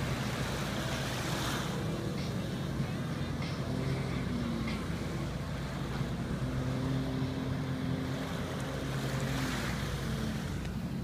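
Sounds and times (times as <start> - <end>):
jet ski engine droning: 0.0 - 11.0
surf: 0.0 - 11.0.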